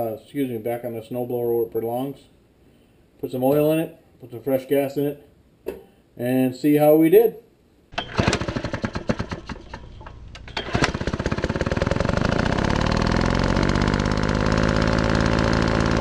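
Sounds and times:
small engine starting: 0:08.0 - 0:16.0.

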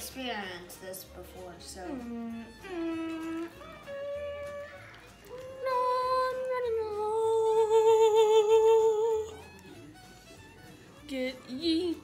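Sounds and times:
child singing long notes: 0:02.1 - 0:09.3.

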